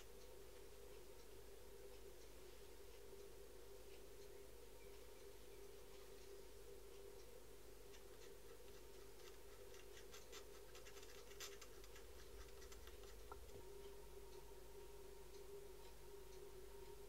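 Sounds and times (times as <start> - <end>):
steady low hum: 0.0 - 17.0
pen tip scratching on wood: 8.8 - 13.4.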